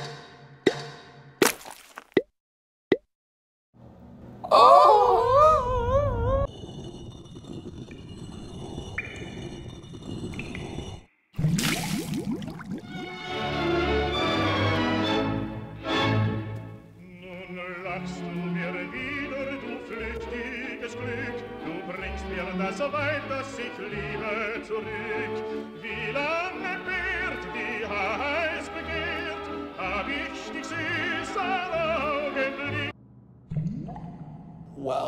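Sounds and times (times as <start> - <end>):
classical-style music: 12.8 - 32.9
operatic singing with vibrato: 17.0 - 32.9.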